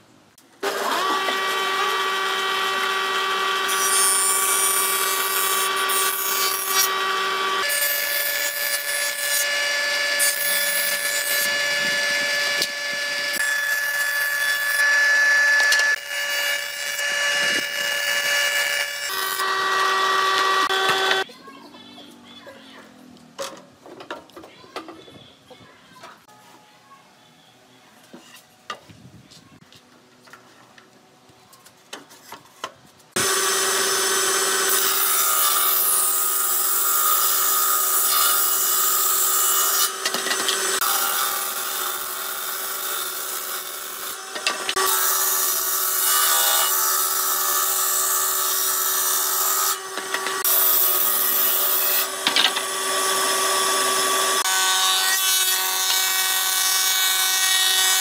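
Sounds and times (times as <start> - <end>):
table saw ripping boards: 0.6 - 21.2, 33.2 - 58.0
thickness planer cutting board: 17.0 - 21.2.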